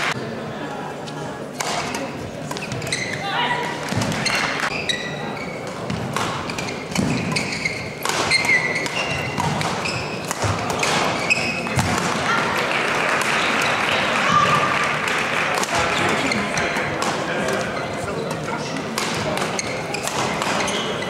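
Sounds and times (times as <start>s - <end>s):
murmur of spectators: 0.0s - 21.0s
rackets striking shuttlecock: 1.6s - 3.1s, 5.7s - 12.2s, 16.6s - 21.0s
shoes squeaking on court floor: 1.8s - 12.0s, 15.7s - 21.0s.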